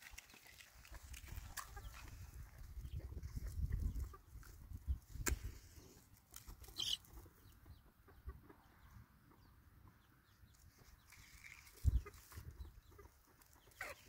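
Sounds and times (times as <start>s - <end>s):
chicken clucking: 0.9s - 4.7s, 5.9s - 14.0s
dry sticks being handled: 11.1s - 12.3s.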